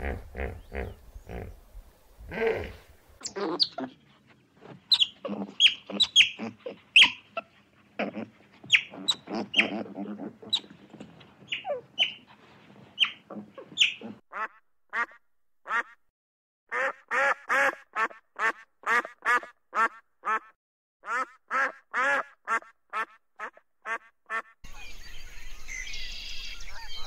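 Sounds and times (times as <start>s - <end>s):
animal calling repeatedly: 3.2s - 4.0s, 4.9s - 10.8s, 13.0s - 15.1s.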